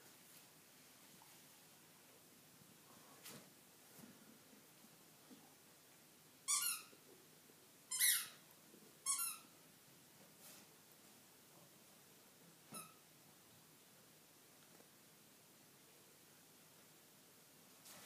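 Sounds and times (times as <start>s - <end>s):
squeaky toy squeaks: 6.5s - 6.9s, 7.9s - 8.4s, 9.0s - 9.5s, 12.7s - 13.0s.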